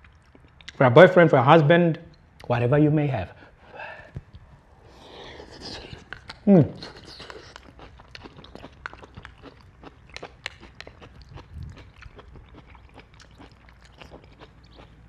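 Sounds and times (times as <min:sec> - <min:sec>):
person chewing food: 0:00.0 - 0:00.8, 0:04.2 - 0:15.0.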